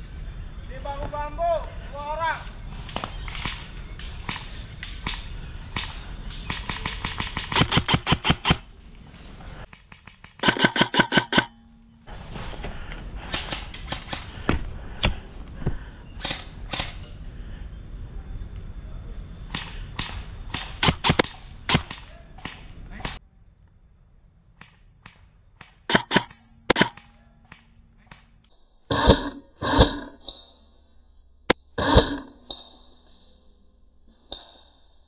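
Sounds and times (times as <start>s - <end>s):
airsoft gun rapid bursts: 6.8s - 8.6s, 10.4s - 11.5s, 25.9s - 27.0s
airsoft gun single shots: 19.6s - 23.2s.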